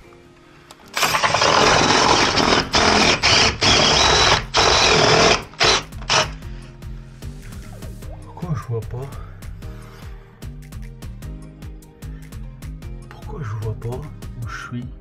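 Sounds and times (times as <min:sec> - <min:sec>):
electric drill boring into wall: 0:00.9 - 0:06.4.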